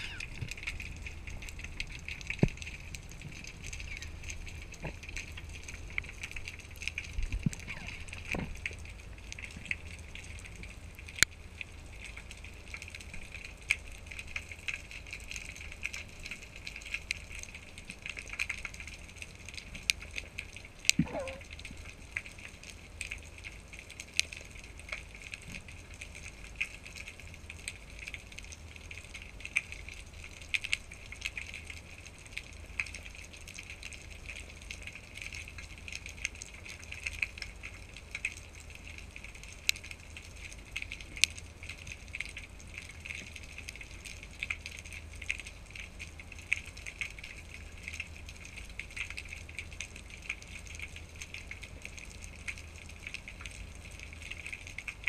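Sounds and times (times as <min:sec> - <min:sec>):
underwater crackling and clicks: 0:00.0 - 0:55.0.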